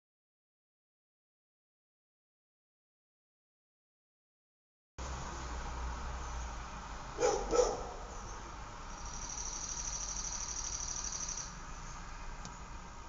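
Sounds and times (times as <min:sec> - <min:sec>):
dog barking: 0:07.2 - 0:08.1
cricket trilling: 0:08.1 - 0:12.0.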